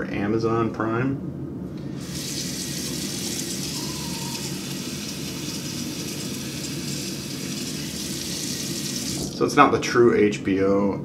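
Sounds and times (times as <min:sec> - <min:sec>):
water running from tap into sink: 0:02.0 - 0:09.4.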